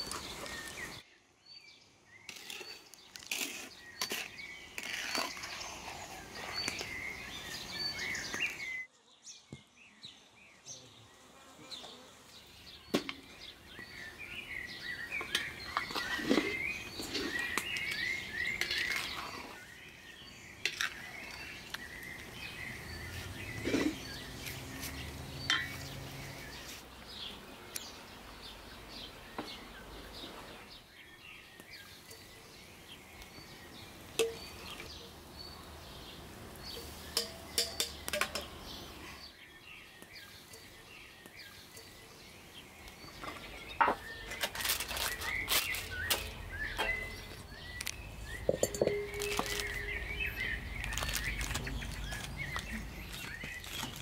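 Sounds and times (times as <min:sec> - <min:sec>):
birds chirping and singing: 0:00.0 - 0:54.0
sharp clicks and clinks: 0:48.5 - 0:50.0.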